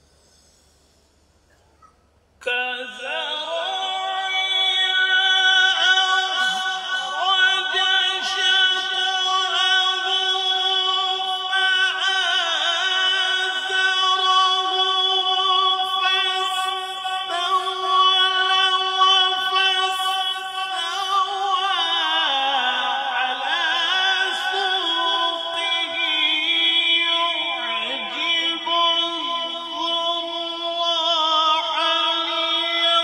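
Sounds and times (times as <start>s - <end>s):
man reciting melodically: 2.4s - 33.0s.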